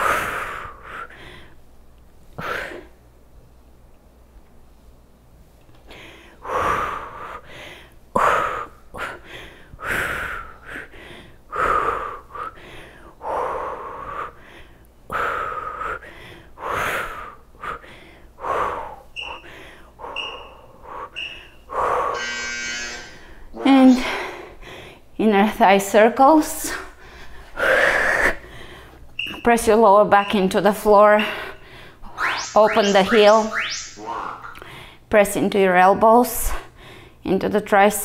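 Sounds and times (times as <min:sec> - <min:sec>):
woman breathing hard: 0:05.9 - 0:22.2, 0:23.2 - 0:25.1, 0:26.8 - 0:29.1, 0:36.7 - 0:37.2.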